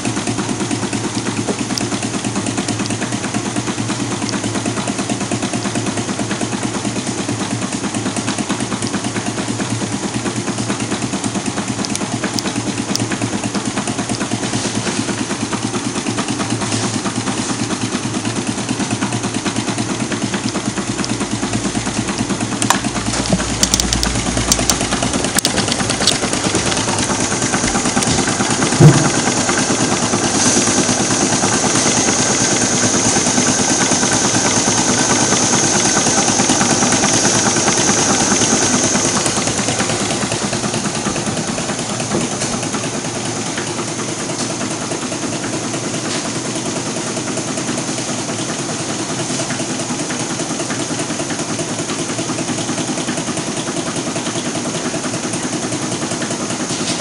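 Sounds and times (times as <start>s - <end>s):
stirling engine clattering: 0.0s - 57.0s
sharp clicks: 20.4s - 29.7s
loud knock: 22.8s - 30.8s.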